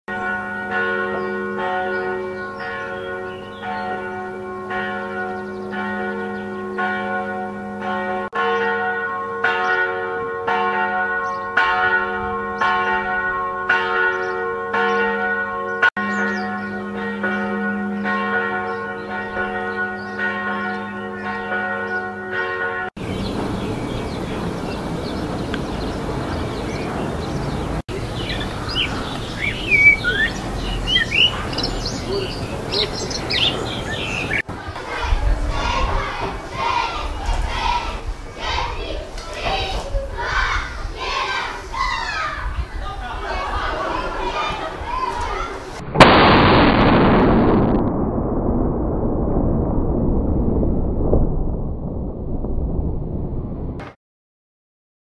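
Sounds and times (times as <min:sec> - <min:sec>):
birds chirping: 0:00.1 - 0:04.5, 0:05.1 - 0:07.0, 0:14.0 - 0:15.1, 0:15.7 - 0:22.1, 0:23.0 - 0:34.8
church bells ringing: 0:00.1 - 0:39.1.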